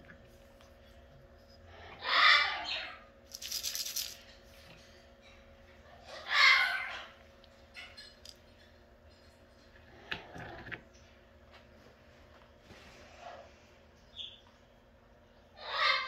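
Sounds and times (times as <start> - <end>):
parrot call: 2.0 - 3.1, 6.1 - 7.1, 15.6 - 16.0
parrot rattling: 3.3 - 4.4.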